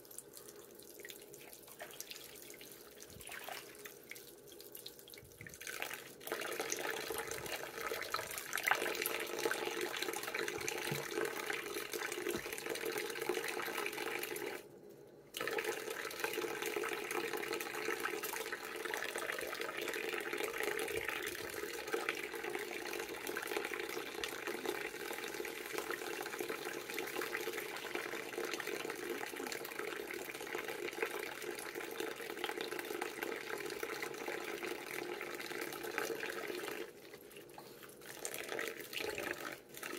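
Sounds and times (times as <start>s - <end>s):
tap water running into sink: 5.2s - 14.6s.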